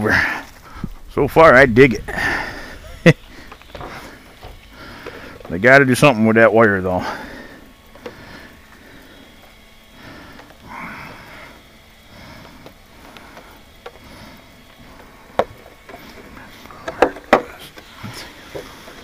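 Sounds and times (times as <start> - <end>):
plastic clicks and knocks: 16.8 - 17.9.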